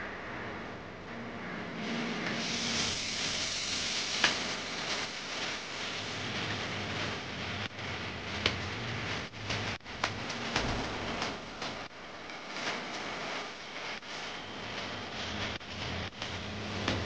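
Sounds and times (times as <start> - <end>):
combine harvester hissing rush: 1.9 - 5.3.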